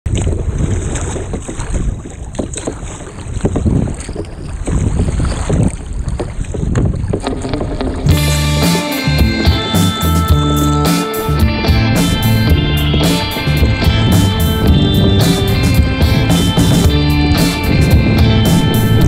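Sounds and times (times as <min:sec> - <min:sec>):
wind buffeting microphone: 0:00.1 - 0:08.5, 0:11.2 - 0:19.0
water splashing against kayak: 0:00.1 - 0:19.0
music: 0:07.5 - 0:19.0.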